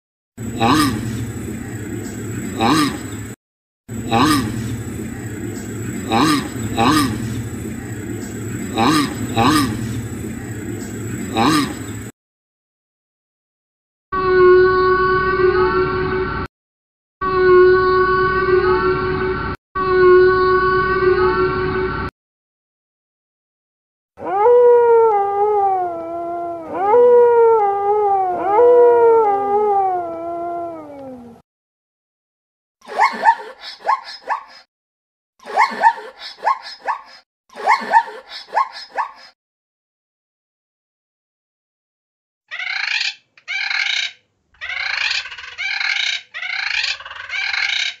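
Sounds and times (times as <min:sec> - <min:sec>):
parrot squawking: 0:04.0 - 0:10.1, 0:32.9 - 0:34.7, 0:35.4 - 0:39.4, 0:42.5 - 0:48.0
wolf howling: 0:24.2 - 0:31.4.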